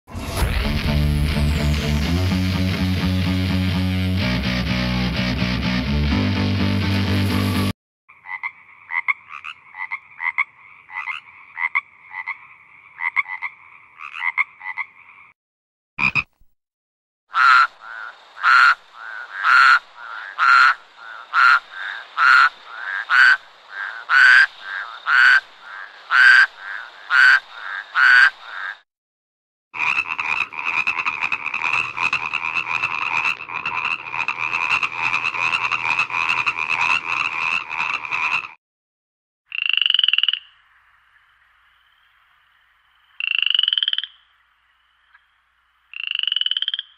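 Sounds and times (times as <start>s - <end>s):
frog croaking: 8.1s - 15.4s, 16.0s - 16.3s, 17.3s - 28.8s, 29.8s - 38.6s, 39.5s - 46.9s.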